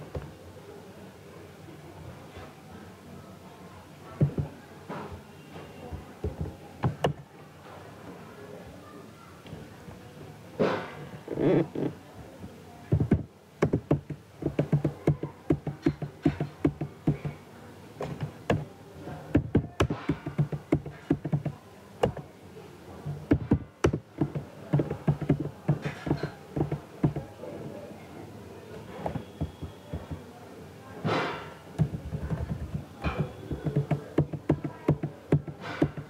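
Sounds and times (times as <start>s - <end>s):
keyboard typing: 12.9s - 17.4s, 19.3s - 22.3s, 23.1s - 27.3s, 29.0s - 30.2s, 31.8s - 36.0s.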